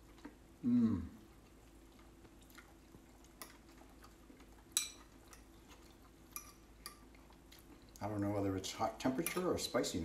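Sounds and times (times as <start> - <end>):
faint steady hum: 0.0 - 10.0
fork clinking against bowl: 6.3 - 7.0.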